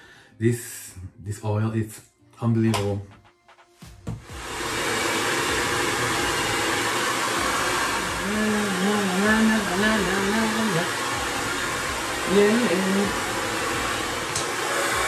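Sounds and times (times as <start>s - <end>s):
hair dryer blowing: 4.1s - 15.0s
man singing: 8.0s - 11.1s, 12.2s - 13.4s.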